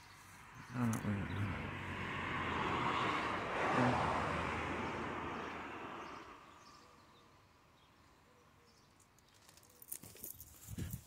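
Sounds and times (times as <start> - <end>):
road vehicle passing: 0.0 - 7.6.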